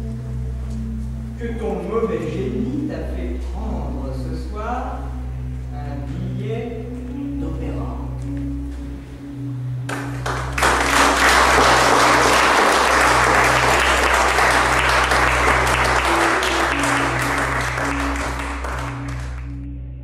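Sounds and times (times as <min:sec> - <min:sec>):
ambient music with low notes: 0:00.0 - 0:20.0
audience clapping: 0:09.9 - 0:19.6.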